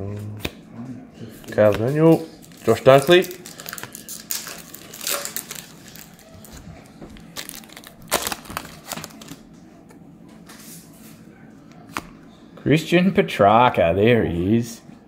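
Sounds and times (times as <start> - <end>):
foil wrapper crinkling and tearing: 2.4 - 6.3, 7.2 - 9.4.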